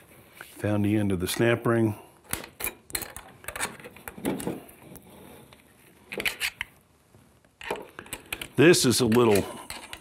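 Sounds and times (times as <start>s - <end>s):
metallic clicks and scrapes: 7.6s - 10.0s.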